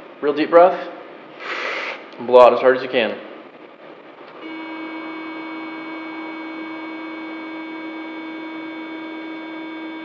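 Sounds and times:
breath-test machine steady tone: 4.4 - 10.0.

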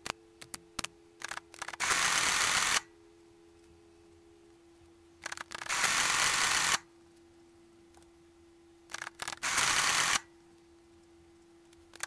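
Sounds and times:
calculator motor and gears running: 1.2 - 2.8, 5.2 - 6.8, 8.9 - 10.2.

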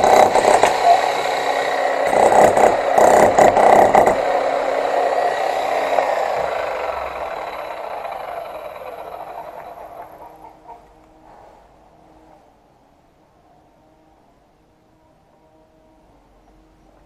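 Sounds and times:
demolition hammer chiselling concrete: 0.0 - 10.2.

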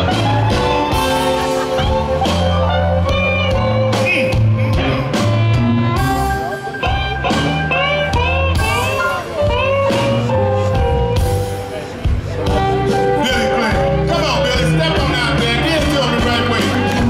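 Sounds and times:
amplified harmonica bending notes: 0.0 - 17.0
drums: 0.0 - 17.0
electric guitar: 0.0 - 17.0.

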